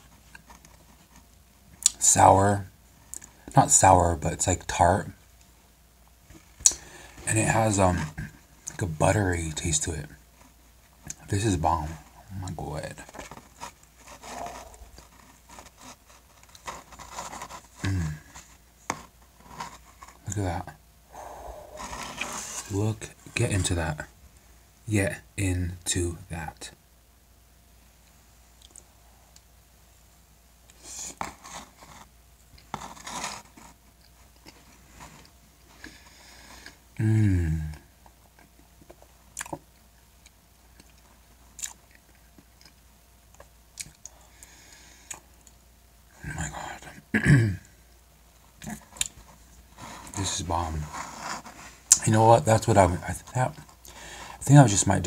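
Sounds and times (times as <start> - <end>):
fork scraping plastic container: 21.8 - 22.8, 32.7 - 33.7, 49.8 - 51.8
person humming mmm: 37.0 - 37.8.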